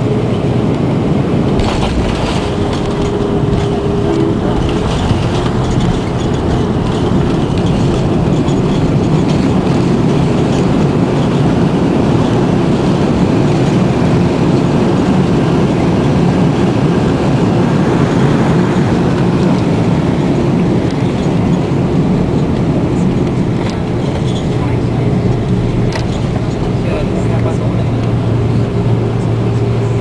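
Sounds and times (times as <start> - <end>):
airliner rolling on runway: 0.0 - 30.0
jet engines in reverse thrust: 0.0 - 30.0.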